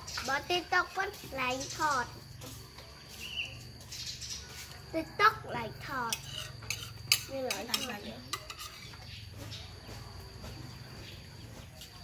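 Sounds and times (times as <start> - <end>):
metal spoon clinking on dish: 6.1 - 9.1.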